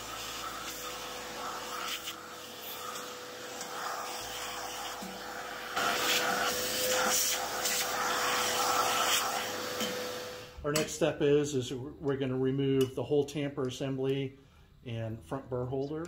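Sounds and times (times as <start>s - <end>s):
shop vacuum whining: 0.0s - 10.8s.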